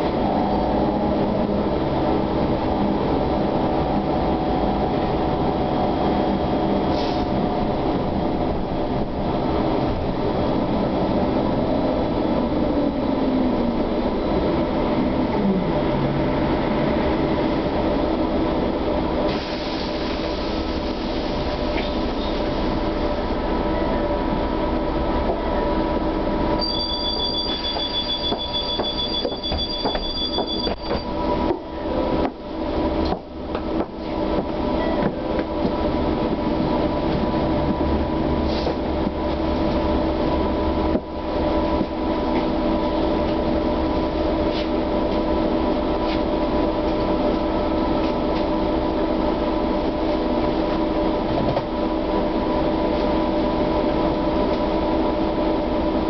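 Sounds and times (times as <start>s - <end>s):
high two-tone beeping: 26.6s - 31.1s.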